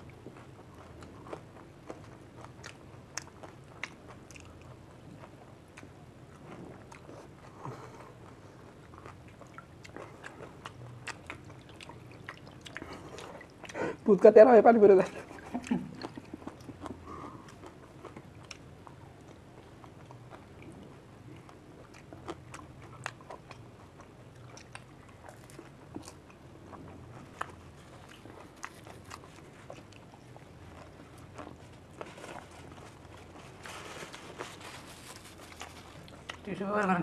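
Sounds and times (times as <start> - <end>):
soft chewing: 0.0 - 37.0
crisp crunches: 31.4 - 36.4.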